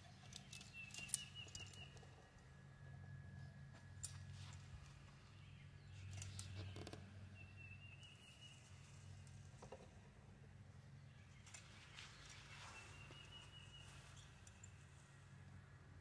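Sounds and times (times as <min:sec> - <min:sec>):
tool rustling in vines: 0:11.3 - 0:15.1.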